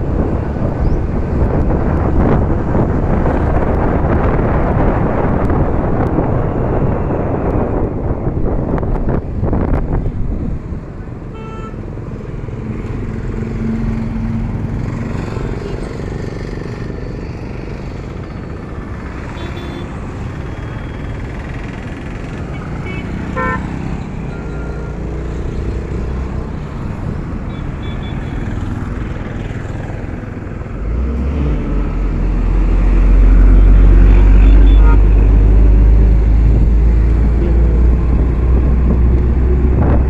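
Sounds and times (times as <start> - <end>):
road traffic noise: 0.0 - 40.0
truck engine rumbling: 0.0 - 40.0
vehicle horn toot: 11.4 - 11.8, 19.4 - 19.9, 22.8 - 23.6, 34.4 - 35.1.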